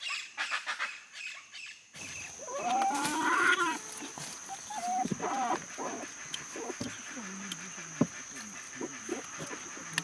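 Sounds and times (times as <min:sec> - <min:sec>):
animal calling: 0:02.1 - 0:10.0.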